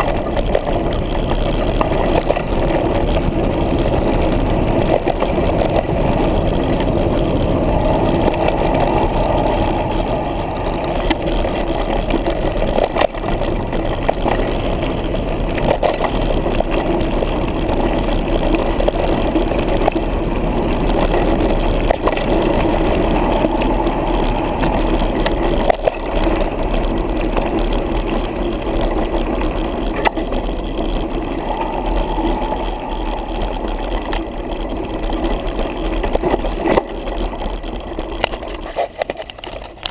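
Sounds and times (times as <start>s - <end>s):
tyre rumble and air rush: 0.0s - 37.5s.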